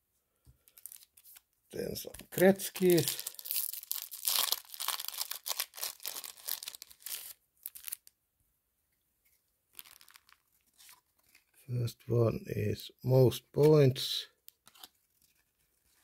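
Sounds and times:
card pack wrapper tearing: 0.7s - 8.1s, 9.8s - 11.5s, 14.6s - 15.0s.

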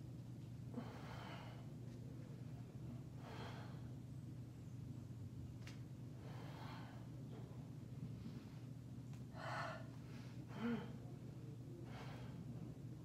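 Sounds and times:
steady low hum: 0.0s - 13.0s
woman breathing: 0.7s - 1.9s, 3.1s - 4.0s, 6.1s - 7.5s, 8.1s - 11.1s, 11.8s - 12.7s.

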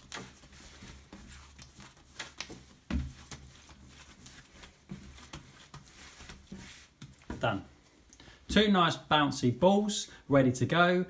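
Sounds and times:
dough rubbing on wood: 0.0s - 7.6s.

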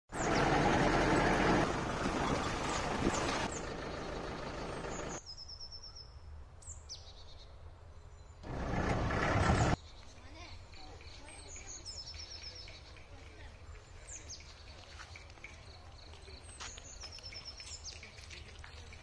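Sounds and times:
jeep engine running: 0.1s - 5.2s, 8.4s - 9.8s.

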